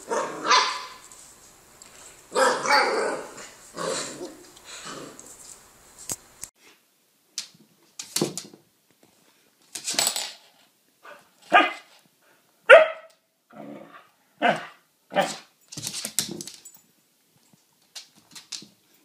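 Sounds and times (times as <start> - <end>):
dog barking: 0.0 - 1.0, 2.3 - 3.4, 11.1 - 11.9, 12.7 - 13.2, 14.4 - 15.5.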